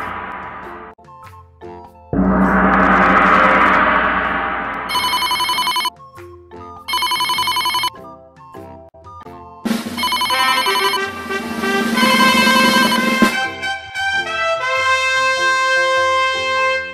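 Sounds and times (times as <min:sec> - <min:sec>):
gong ringing: 0:02.2 - 0:05.9, 0:10.0 - 0:13.6
telephone bell ringing: 0:04.9 - 0:05.9, 0:06.9 - 0:07.9, 0:10.0 - 0:11.2, 0:12.0 - 0:13.4.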